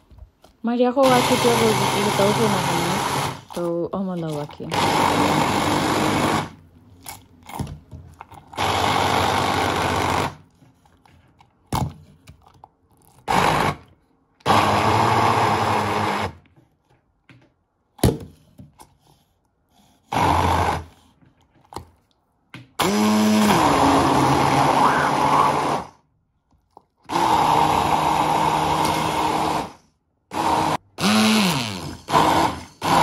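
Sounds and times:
hand blender running: 1.0 - 6.6, 8.6 - 10.4, 13.3 - 13.8, 14.5 - 16.4, 20.1 - 20.9, 22.8 - 26.0, 27.1 - 33.0.

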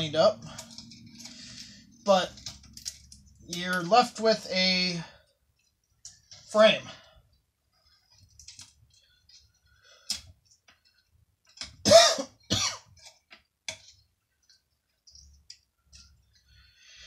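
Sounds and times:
man coughing: 11.8 - 12.9.

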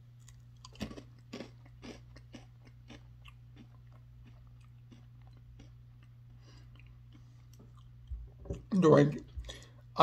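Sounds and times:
low steady hum: 0.0 - 10.0
potato chip crunching: 0.1 - 8.0.

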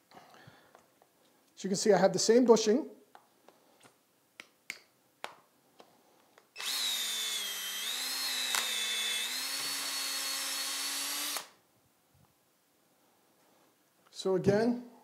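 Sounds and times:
cordless drill whining: 6.6 - 11.6.

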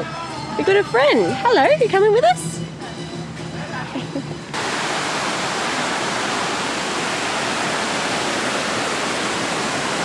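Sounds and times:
creek rushing over stones: 4.6 - 10.0.

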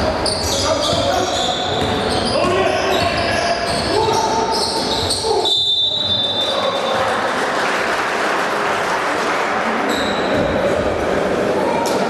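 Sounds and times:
spectators applauding: 6.6 - 9.8.

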